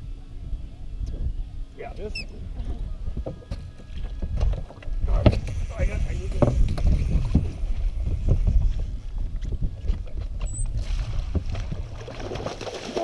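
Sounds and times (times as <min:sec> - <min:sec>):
wind on microphone: 0:00.0 - 0:12.7
fish thrashing at water surface: 0:10.8 - 0:13.0
knocks and splashes: 0:10.8 - 0:13.0.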